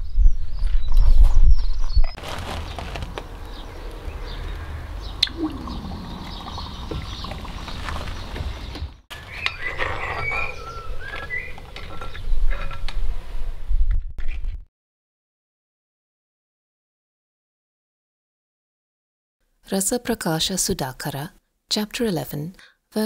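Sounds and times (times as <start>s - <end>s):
molten metal hissing and bubbling: 4.8s - 8.8s.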